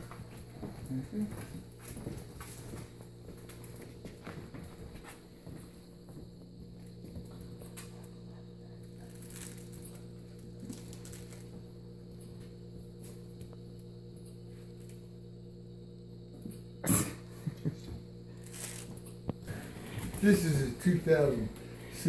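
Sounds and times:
low electrical hum: 0.0s - 22.0s.

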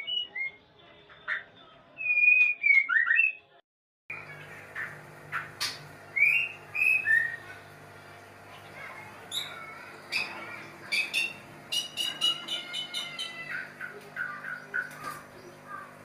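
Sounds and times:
bird chirps: 5.3s - 7.5s, 9.3s - 15.9s
bird whistled notes: 6.1s - 7.4s.

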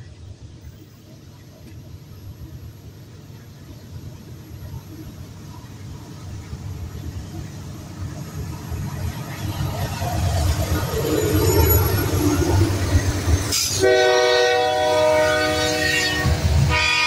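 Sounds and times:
diesel locomotive rumble: 0.0s - 17.0s.

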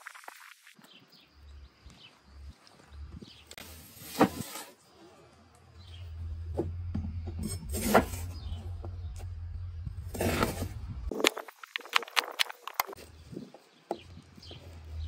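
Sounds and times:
low steady rumble: 5.9s - 11.1s.

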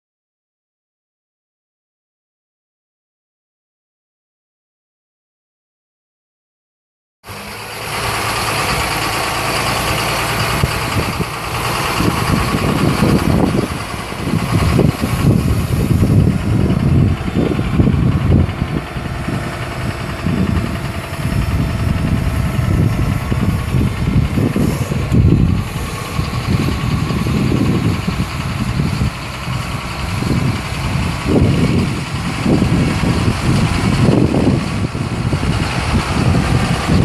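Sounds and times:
tractor diesel engine running: 7.2s - 37.0s
irregular low rumble: 7.6s - 37.0s.

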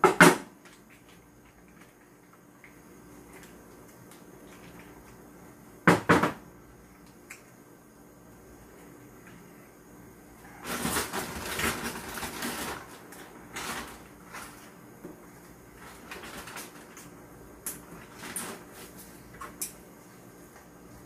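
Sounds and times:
plastic packet crinkling: 10.5s - 14.8s, 15.7s - 17.1s.

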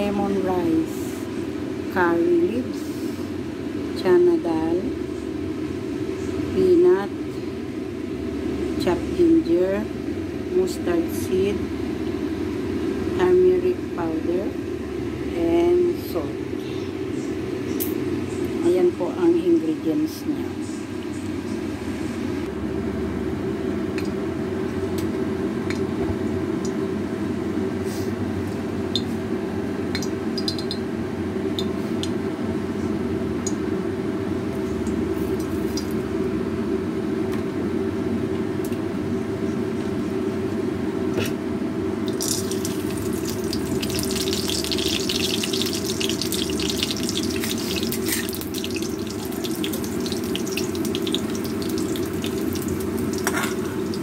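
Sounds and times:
seeds crackling in hot oil: 30.0s - 30.8s, 42.0s - 54.0s.

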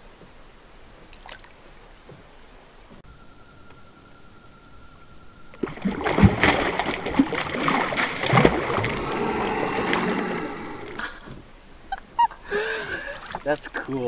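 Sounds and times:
fish thrashing and splashing: 5.6s - 10.3s, 12.2s - 14.0s.

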